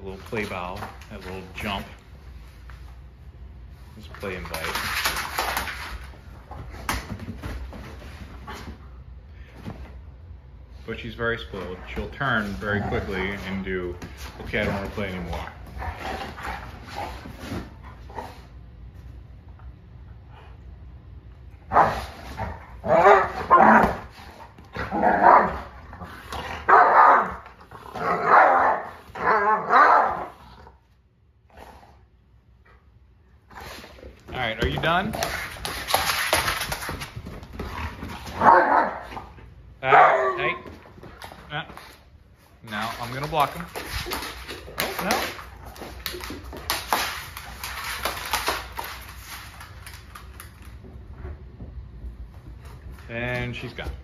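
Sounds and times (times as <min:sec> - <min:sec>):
dog claws clicking on hard floor: 0:04.1 - 0:08.8, 0:34.0 - 0:38.6, 0:42.6 - 0:51.3
dogs growling and barking: 0:15.6 - 0:18.5, 0:21.6 - 0:30.8, 0:37.6 - 0:40.5.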